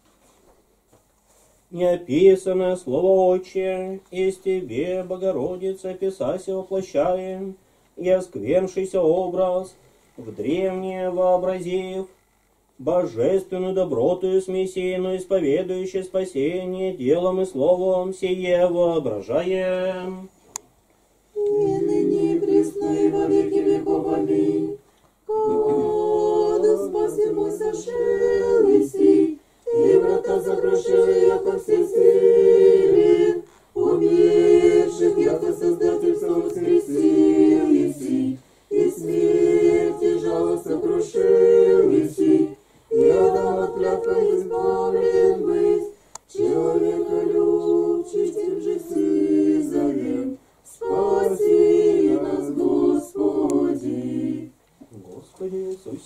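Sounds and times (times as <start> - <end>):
group singing church chant: 21.4 - 54.6.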